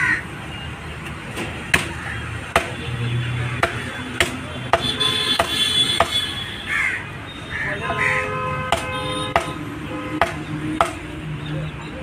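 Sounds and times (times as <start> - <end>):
cleaver chopping on wooden block: 1.7 - 2.8, 3.6 - 6.2, 8.7 - 9.6, 10.2 - 11.0.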